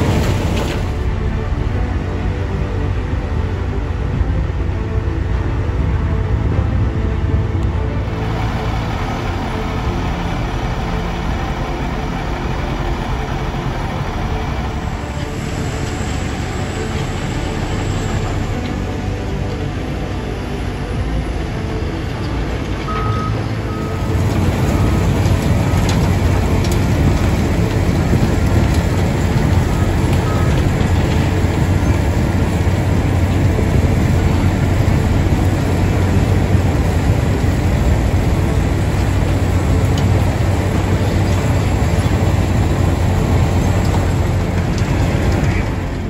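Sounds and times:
milling machine droning: 0.0s - 46.0s
reversing alarm beeping: 22.8s - 25.2s.

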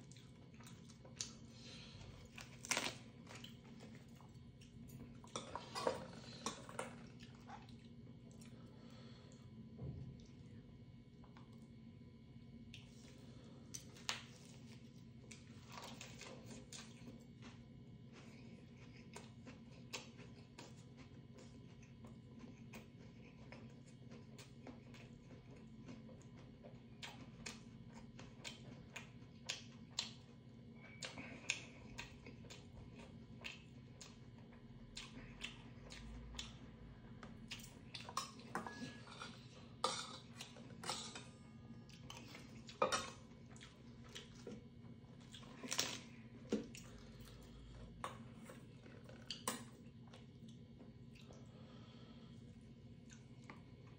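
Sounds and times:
steady low hum: 0.0s - 53.9s
chopsticks clinking on steel bowls: 38.2s - 39.4s.

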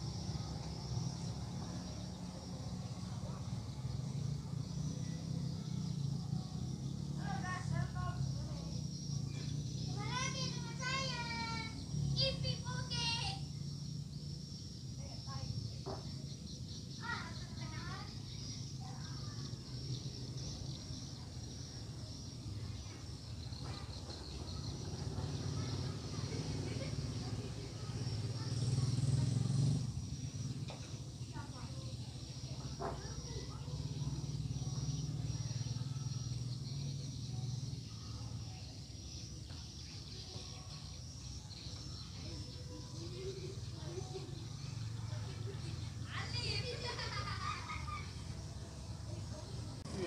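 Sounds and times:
insect chirring: 0.0s - 50.0s.

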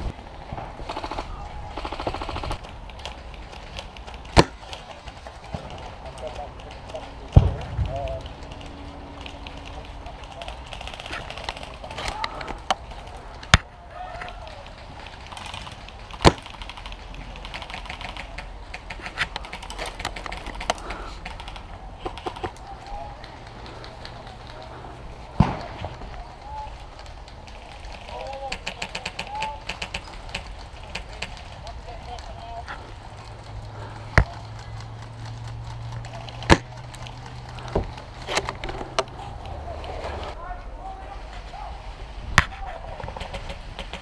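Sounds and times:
airsoft guns firing: 0.8s - 2.7s, 15.3s - 26.6s.

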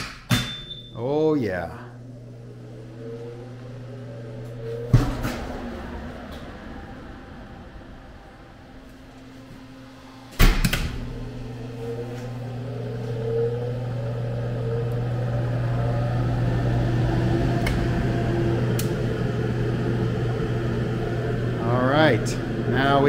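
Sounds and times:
oven fan humming: 0.0s - 23.0s
oven clunk: 4.5s - 6.6s, 10.3s - 11.5s.

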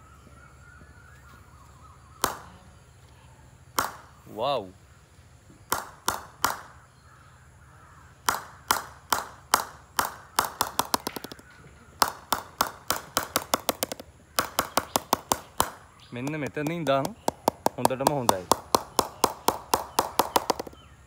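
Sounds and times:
mallet knocking on cricket bat: 8.3s - 20.8s.

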